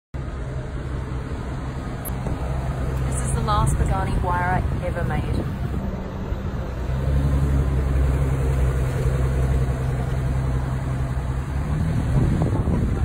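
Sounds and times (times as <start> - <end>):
engine idling: 0.2 - 13.0.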